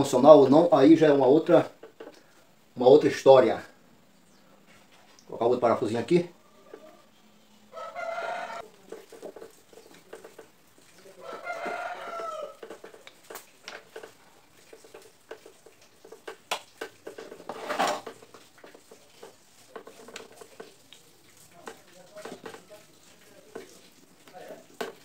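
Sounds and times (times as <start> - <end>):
rooster crowing: 6.4 - 8.6, 11.2 - 12.6.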